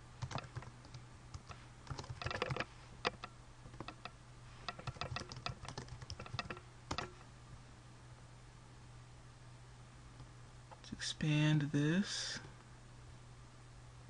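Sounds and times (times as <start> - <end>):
low steady hum: 0.0 - 14.0
typing on computer keyboard: 0.2 - 4.1, 4.7 - 7.2.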